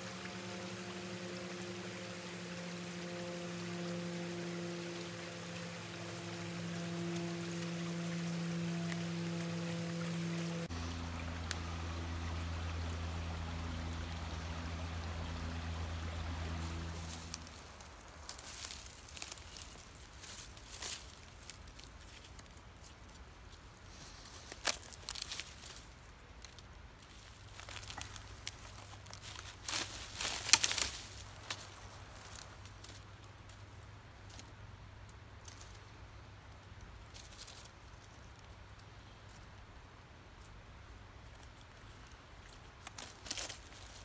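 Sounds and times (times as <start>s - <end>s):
low hum: 0.0s - 20.4s
dry leaves and twigs crackling: 0.0s - 44.0s.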